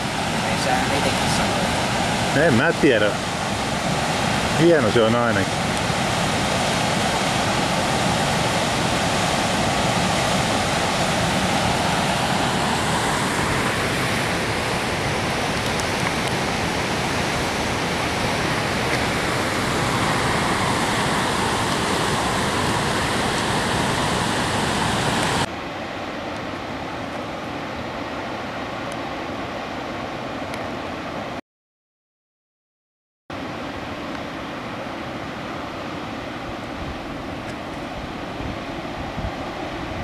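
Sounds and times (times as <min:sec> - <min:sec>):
rapids rushing: 0:00.0 - 0:31.1.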